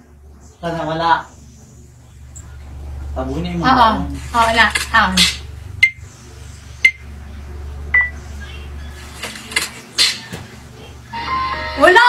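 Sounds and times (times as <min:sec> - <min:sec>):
steady low hum: 0:00.0 - 0:12.0
short electronic beeps: 0:08.0 - 0:08.6.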